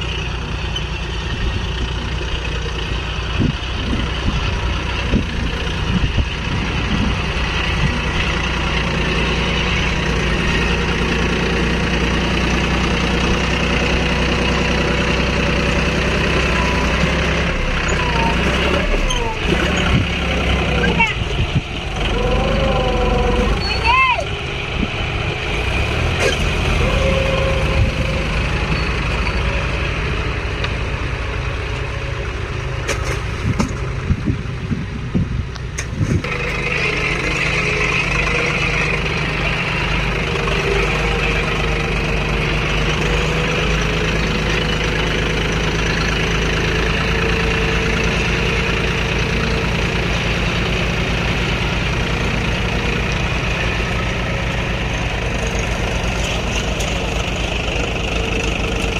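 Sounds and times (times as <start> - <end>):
tractor diesel engine running: 0.0 - 58.9
clunks: 35.5 - 39.6.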